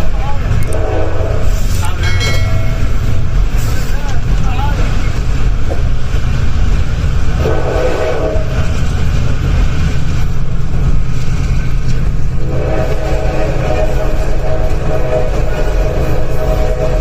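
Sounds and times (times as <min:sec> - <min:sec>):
train running at speed: 0:00.0 - 0:17.0
train horn: 0:00.6 - 0:03.3, 0:07.4 - 0:08.8, 0:12.4 - 0:17.0.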